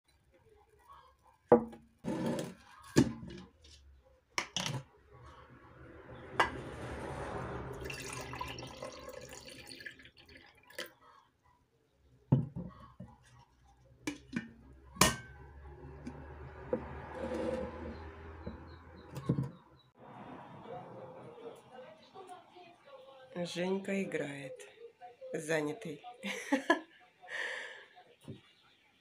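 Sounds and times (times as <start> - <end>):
liquid pouring into mug: 7.7 - 11.0
mug and jar knocking on counter: 12.3 - 12.8.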